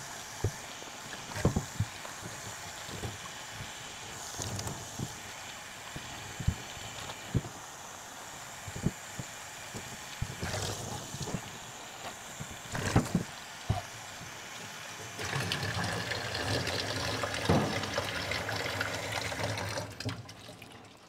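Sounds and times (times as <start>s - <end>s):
tap water running into sink: 15.1s - 21.0s.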